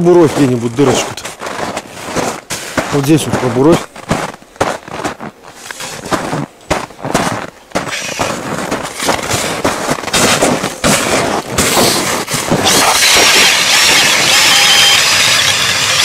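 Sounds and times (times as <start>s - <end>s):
crackling and knocks: 0.4s - 14.5s
drill boring into ice: 7.9s - 8.3s, 11.8s - 16.0s.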